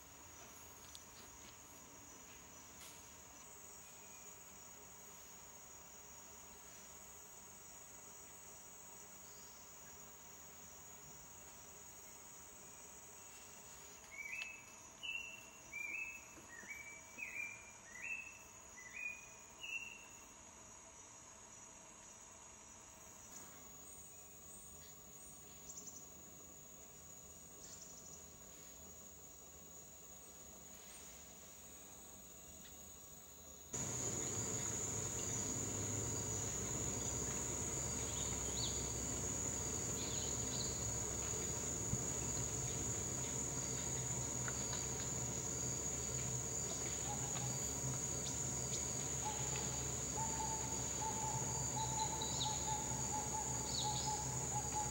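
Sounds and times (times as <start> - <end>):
insect drone: 0.0 - 54.9
short insect chirps: 13.1 - 20.4, 33.8 - 54.9.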